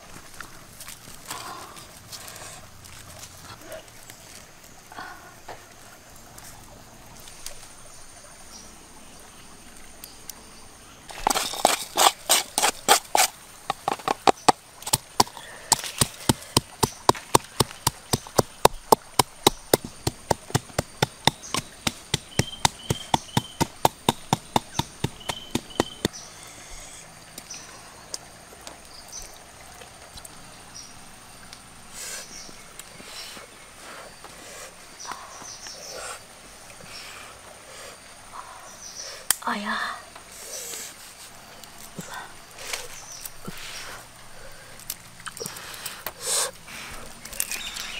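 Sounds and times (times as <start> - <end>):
wooden pestle pounding in mortar: 14.9 - 26.1.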